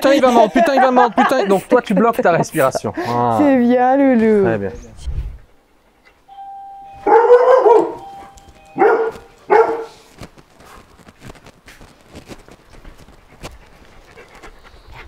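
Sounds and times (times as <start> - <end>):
dog barking: 7.0 - 10.1.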